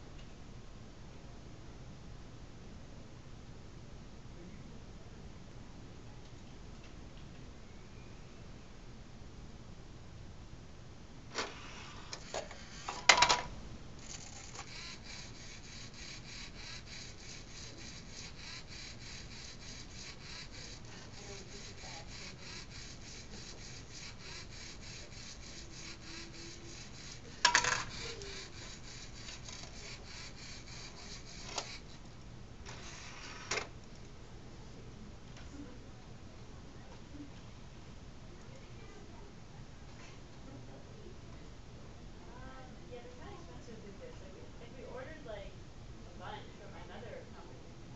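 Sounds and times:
toy motors and gears rattling: 11.4s - 32.0s, 32.7s - 33.7s.

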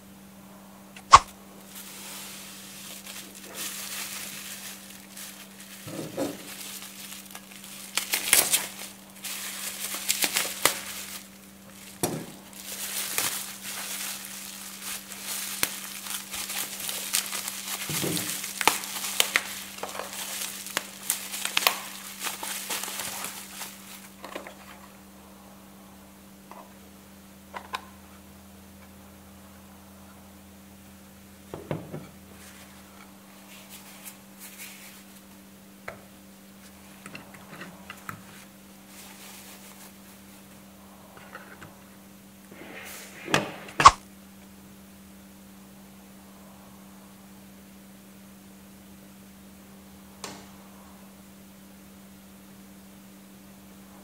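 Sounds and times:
bubble wrap crinkling and crackling: 1.0s - 25.0s, 32.3s - 35.5s, 36.6s - 40.7s.

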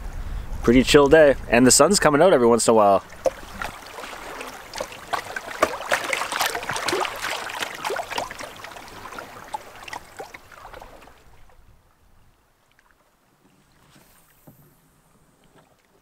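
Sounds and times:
river water burbling and lapping: 0.8s - 16.0s
small water splashes: 2.8s - 14.6s, 15.3s - 16.0s.

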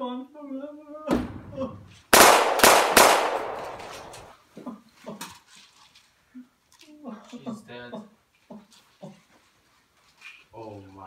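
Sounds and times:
handgun shots: 2.2s - 4.3s.

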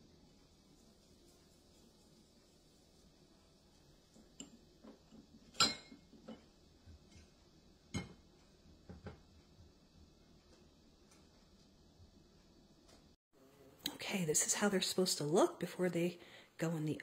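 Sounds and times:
plates and baking sheet clinking: 4.2s - 8.2s.

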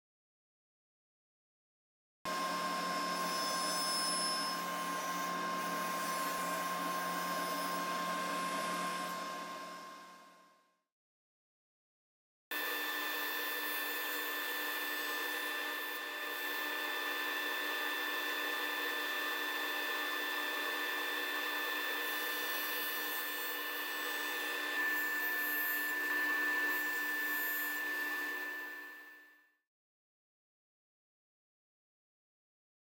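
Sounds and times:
table saw whine: 2.3s - 10.6s, 12.5s - 29.5s.

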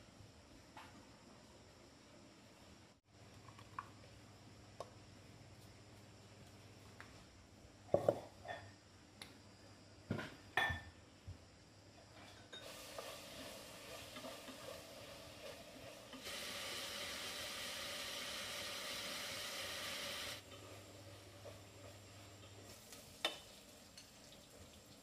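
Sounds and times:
metal pots clanking on stove: 12.3s - 14.9s
meat sizzling in a pot: 12.6s - 25.0s.

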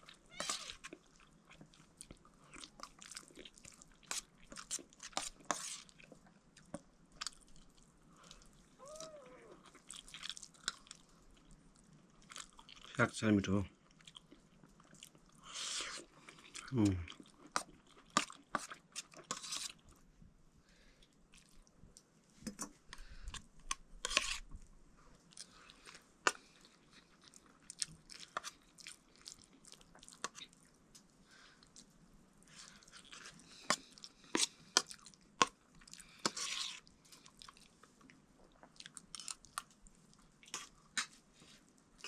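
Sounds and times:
person chewing food: 0.0s - 12.9s, 13.8s - 20.0s, 21.0s - 22.1s, 22.9s - 42.0s.

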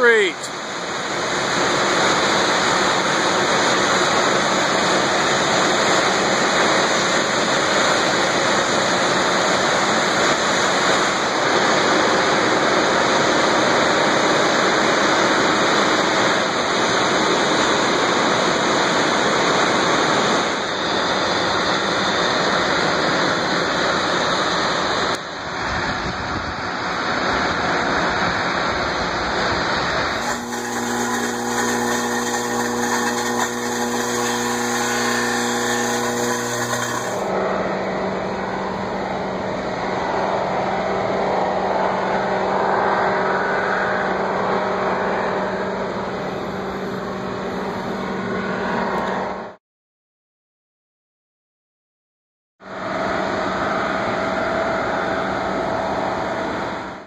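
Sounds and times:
industrial machinery roaring: 0.0s - 49.6s, 52.6s - 57.0s.

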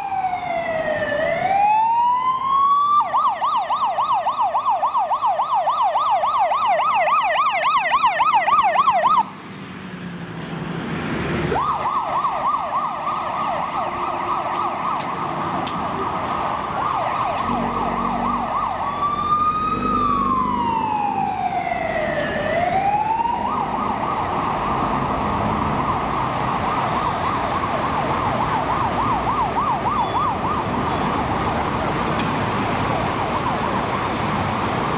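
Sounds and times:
fire engine sirens: 0.0s - 34.9s
traffic noise: 0.0s - 34.9s.

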